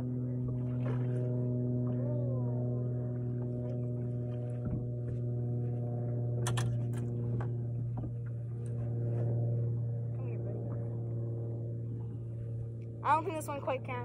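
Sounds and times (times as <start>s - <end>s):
boat motor humming: 0.0s - 14.0s
sharp clicks and knocks: 6.4s - 7.1s.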